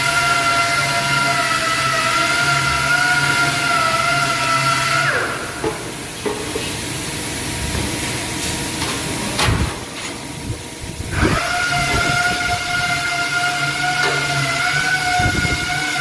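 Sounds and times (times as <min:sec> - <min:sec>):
machinery hissing hum: 0:00.0 - 0:16.0
multi-tone machine whine: 0:10.4 - 0:16.0.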